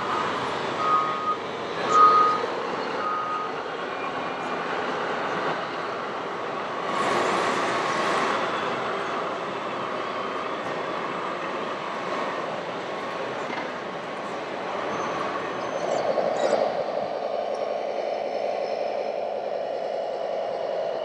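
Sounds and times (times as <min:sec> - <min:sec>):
reversing alarm beeping: 0:00.0 - 0:06.0, 0:14.6 - 0:21.0
hall noise: 0:00.0 - 0:21.0
mechanical rumble: 0:13.2 - 0:21.0.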